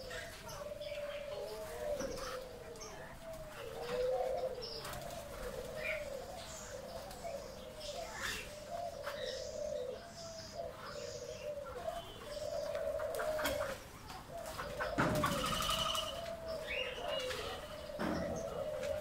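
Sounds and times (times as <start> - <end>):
doves cooing: 0.0 - 19.0
small birds chirping: 0.0 - 19.0.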